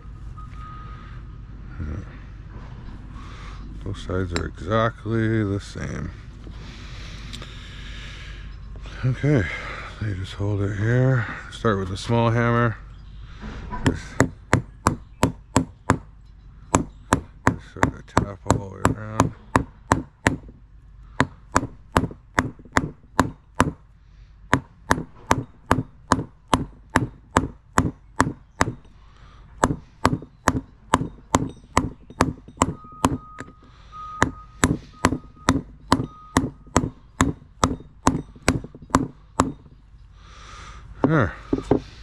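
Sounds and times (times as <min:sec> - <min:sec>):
hammer tapping steel on steel: 0:13.8 - 0:23.9, 0:24.5 - 0:40.0.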